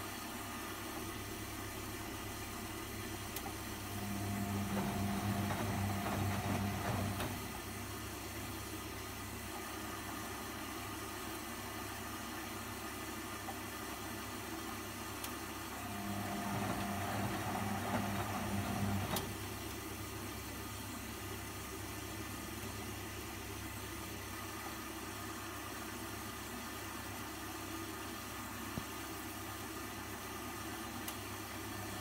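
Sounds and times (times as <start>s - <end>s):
washing machine running: 0.0s - 32.0s
motor hum: 2.9s - 8.8s, 14.5s - 21.4s.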